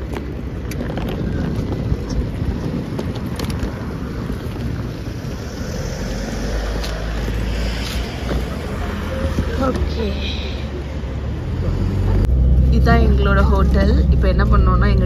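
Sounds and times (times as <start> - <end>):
wind on microphone: 0.0 - 9.9
suitcase wheels rattling on asphalt: 0.0 - 10.1.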